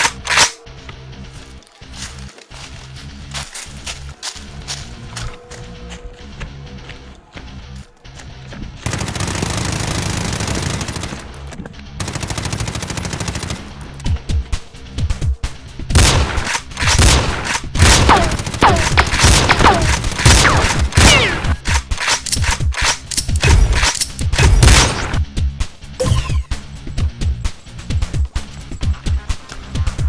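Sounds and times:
automatic gunfire: 16.0s - 21.5s
separate gunshots: 16.0s - 21.8s.

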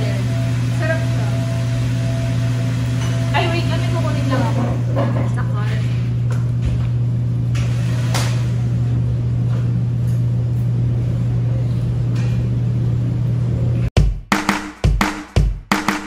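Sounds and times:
low mechanical hum: 0.0s - 13.9s
music: 14.0s - 16.0s.

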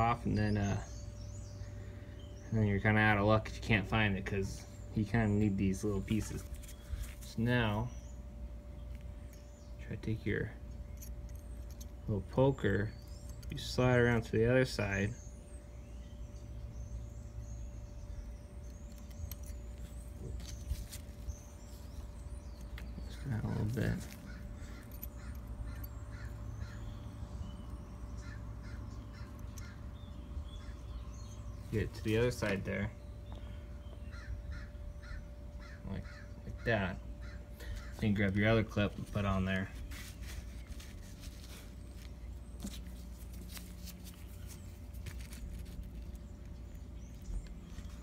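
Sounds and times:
steady low hum: 0.0s - 48.0s
distant crows cawing: 22.4s - 31.4s, 33.3s - 38.8s.

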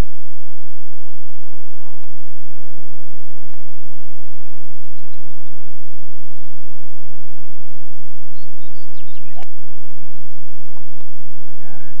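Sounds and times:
low hum and hiss: 0.0s - 12.0s
birds chirping: 4.8s - 6.6s, 8.2s - 12.0s.

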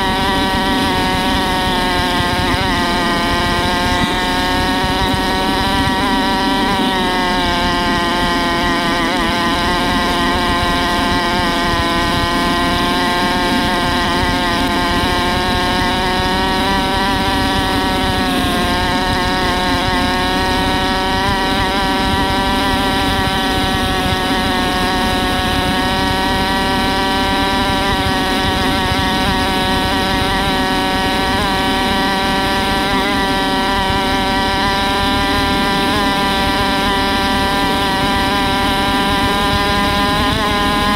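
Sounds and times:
dirt bike engine running: 0.0s - 40.9s.

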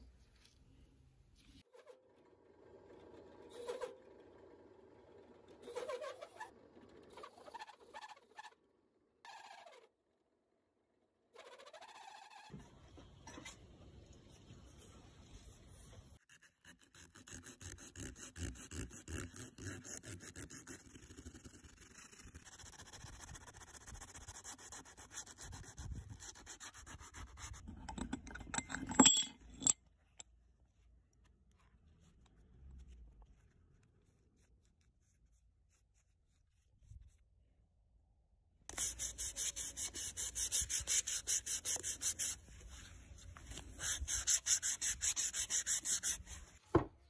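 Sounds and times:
sandpaper rubbing on wood: 38.7s - 42.9s, 43.6s - 46.6s.

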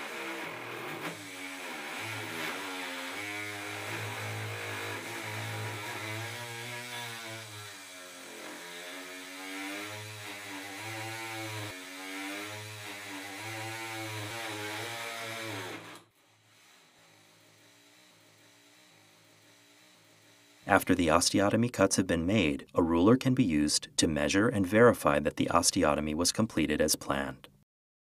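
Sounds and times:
bone saw cutting: 1.0s - 20.8s.

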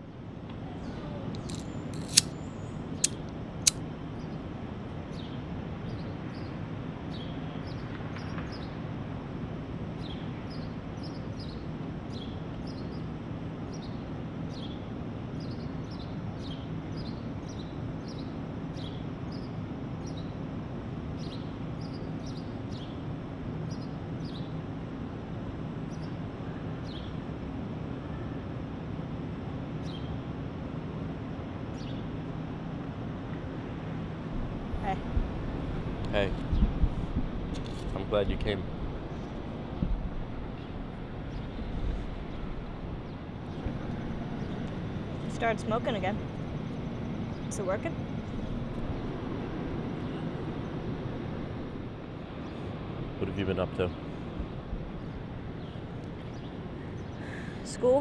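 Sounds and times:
low city rumble: 0.0s - 58.0s
sharp clicks: 1.4s - 2.4s, 3.0s - 3.8s
birds chirping: 40.5s - 58.0s.

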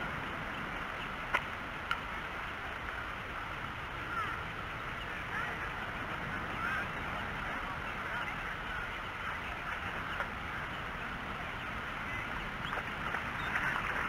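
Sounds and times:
low steady rumble: 0.0s - 14.0s
birds chattering: 4.0s - 14.0s.

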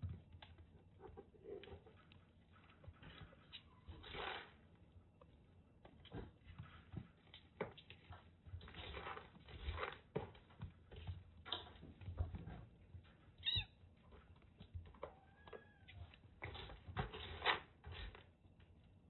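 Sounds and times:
kittens scuffling and rustling: 0.0s - 19.0s
kitten meowing: 13.4s - 13.7s.

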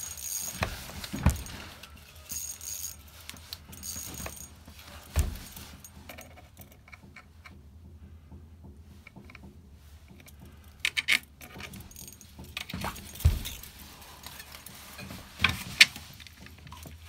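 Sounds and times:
gear jangling rattle: 0.0s - 6.8s, 11.5s - 15.4s.

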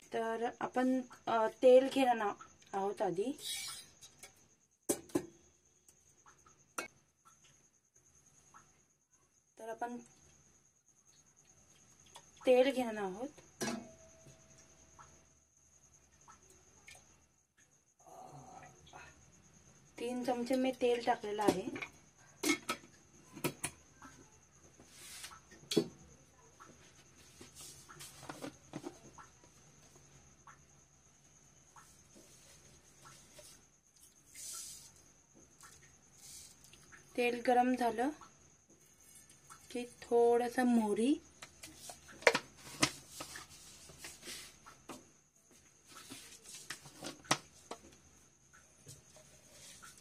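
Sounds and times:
faint room noise: 0.0s - 50.0s
soft hisses: 24.8s - 25.4s, 31.8s - 35.2s, 36.1s - 36.9s.

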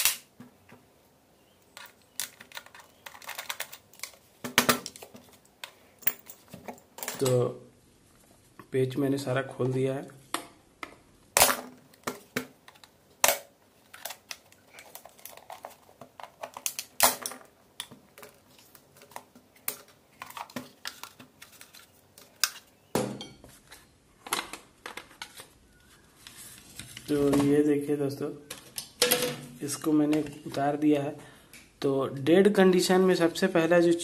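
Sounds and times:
plastic cracking: 11.4s - 22.7s.

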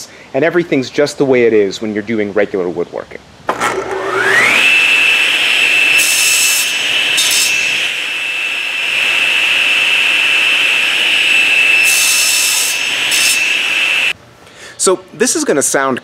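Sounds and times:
table saw whining: 3.5s - 14.2s
saw cutting acrylic hiss: 4.4s - 14.2s.

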